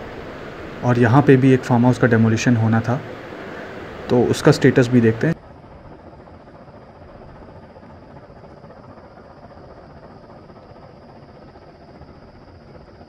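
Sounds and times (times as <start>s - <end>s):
faint high-pitched hiss: 0.0s - 5.4s.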